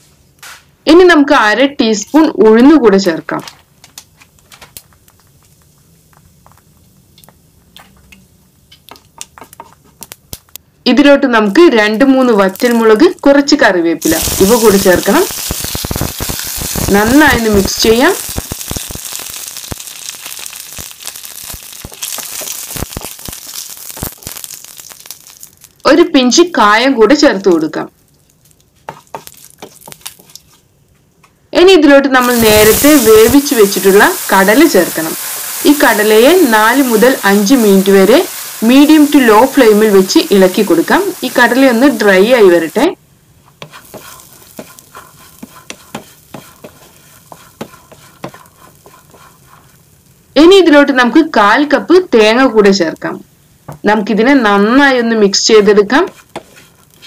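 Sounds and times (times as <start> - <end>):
crackles and pops: 3.4 - 10.7, 11.9 - 13.3, 14.0 - 26.5, 27.3 - 31.4, 32.2 - 50.4, 55.4 - 57.0
spices sizzling in oil: 4.3 - 10.6, 11.4 - 30.7, 32.2 - 57.0
wooden spatula knocking in pan: 43.6 - 49.3.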